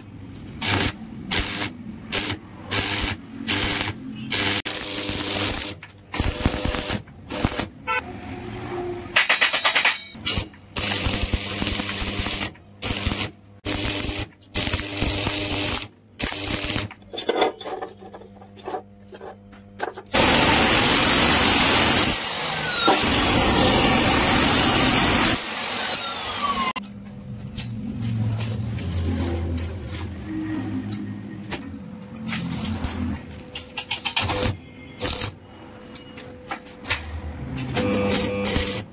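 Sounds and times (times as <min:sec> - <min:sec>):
welding arc crackling: 0:00.4 - 0:08.0, 0:10.2 - 0:17.1, 0:20.1 - 0:26.8, 0:34.2 - 0:35.4, 0:37.8 - 0:38.9
loud grinding noise: 0:20.2 - 0:26.8.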